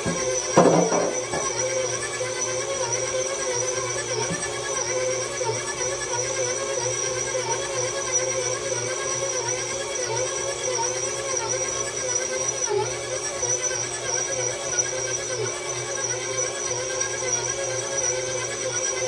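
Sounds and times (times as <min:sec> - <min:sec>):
stand mixer whining: 0:00.0 - 0:19.0.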